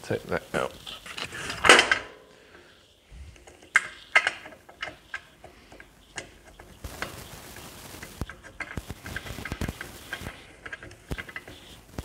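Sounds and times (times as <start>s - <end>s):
metal parts clicking: 3.4s - 7.1s, 8.3s - 11.8s.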